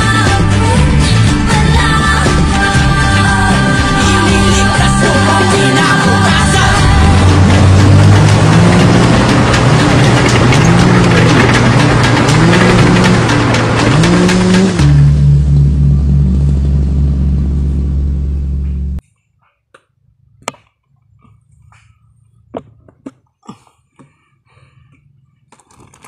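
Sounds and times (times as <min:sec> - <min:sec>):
loud background music: 0:00.0 - 0:15.1.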